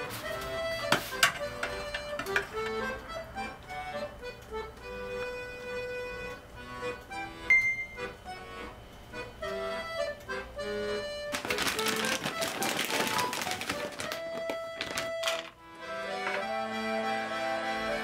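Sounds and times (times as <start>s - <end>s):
accordion melody: 0.0s - 18.0s
crackly rustling noise: 11.2s - 15.6s.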